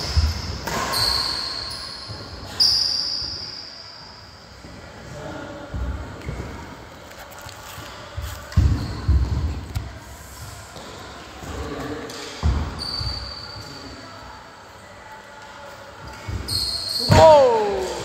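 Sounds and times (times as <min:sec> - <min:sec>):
short high squeak: 0:00.8 - 0:03.6, 0:16.5 - 0:17.2.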